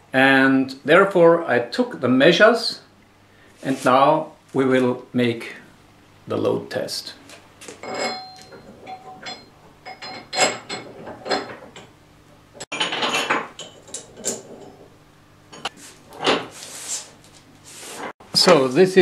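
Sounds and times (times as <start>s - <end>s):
metal cable fittings clanking: 7.8s - 11.9s.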